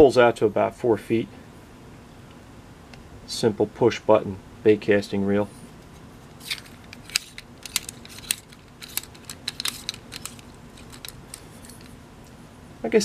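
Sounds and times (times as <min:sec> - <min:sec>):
fishing rod sections clicking and rattling: 0:06.4 - 0:12.0.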